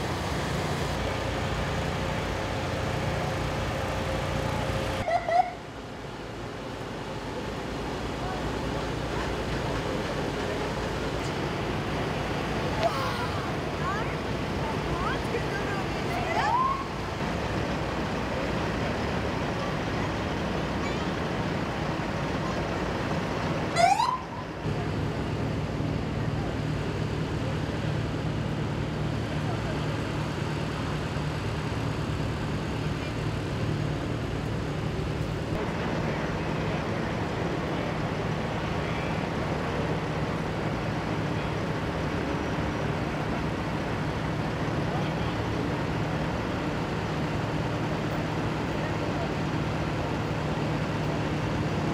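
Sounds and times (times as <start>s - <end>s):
truck diesel engine running: 0.0s - 5.1s, 5.8s - 23.8s
street noise: 0.0s - 51.9s.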